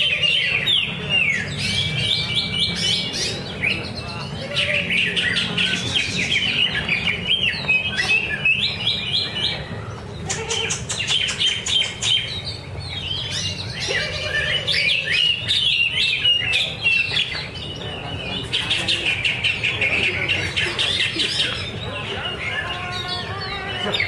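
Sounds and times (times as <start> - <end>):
bird singing chirps and trills: 0.0 - 24.0.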